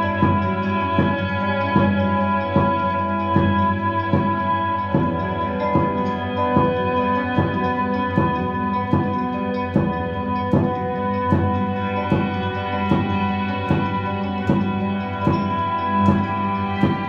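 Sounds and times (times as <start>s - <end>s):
electronic drum beat: 0.1s - 17.0s.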